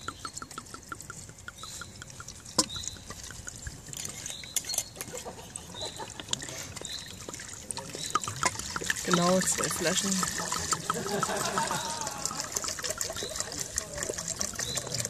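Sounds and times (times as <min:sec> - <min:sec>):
small ticks: 0:00.0 - 0:05.2
wine pouring into pot: 0:05.9 - 0:15.0.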